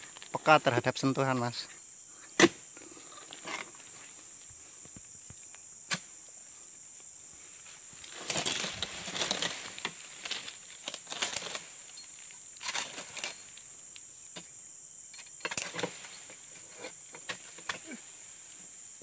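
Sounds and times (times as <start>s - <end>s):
blade scraping palm fronds: 8.0s - 11.9s, 12.6s - 13.4s.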